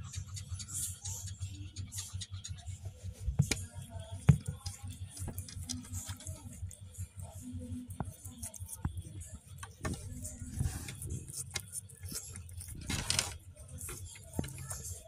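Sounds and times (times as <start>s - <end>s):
scratchy rustle: 2.9s - 15.0s
cat licking kitten: 5.8s - 12.8s.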